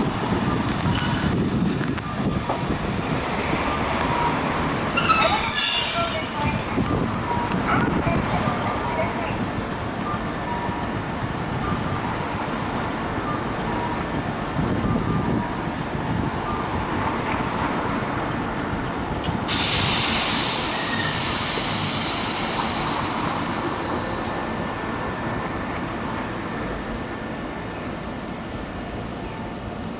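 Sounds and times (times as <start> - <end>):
tram rumbling on rails: 0.0 - 29.9
air brakes hissing: 19.5 - 24.5.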